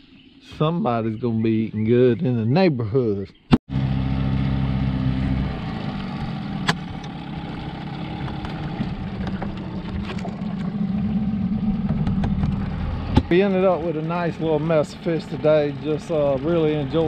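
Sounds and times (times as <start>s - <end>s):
outboard motor running: 3.7s - 17.0s.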